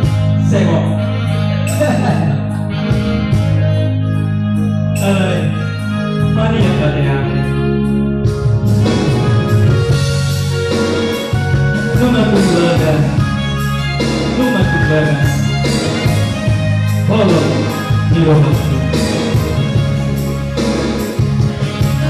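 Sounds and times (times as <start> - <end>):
amplified band with bass line: 0.0 - 22.0.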